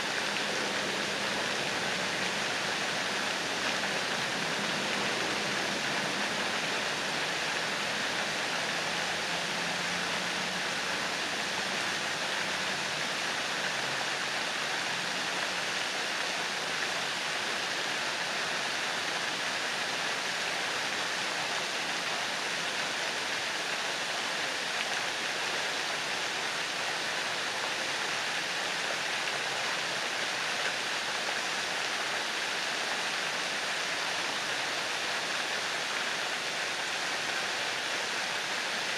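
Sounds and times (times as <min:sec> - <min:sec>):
fountain water splashing: 0:00.0 - 0:38.9.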